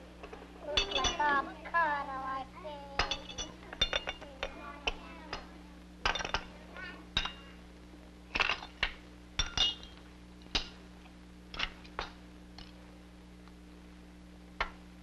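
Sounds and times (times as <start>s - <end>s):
steady low hum: 0.0s - 15.0s
dishes and cutlery clinking: 0.7s - 1.4s, 3.0s - 5.4s.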